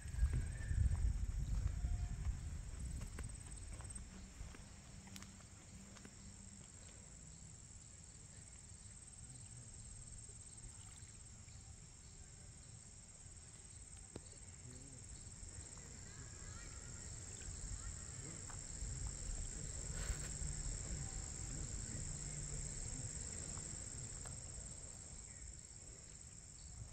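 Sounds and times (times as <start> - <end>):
wind rumble on microphone: 0.0 - 4.6, 16.5 - 25.0
insect chorus trilling: 0.0 - 26.9.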